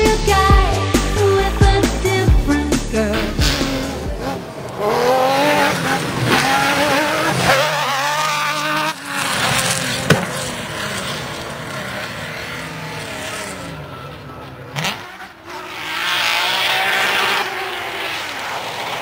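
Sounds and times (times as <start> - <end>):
buggy engine revving: 0.0 - 19.0.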